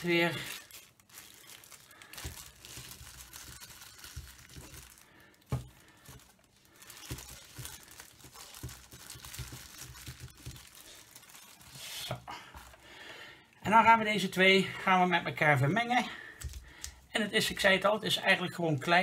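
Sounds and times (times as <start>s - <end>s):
plastic wrapper crinkling: 0.0s - 13.0s.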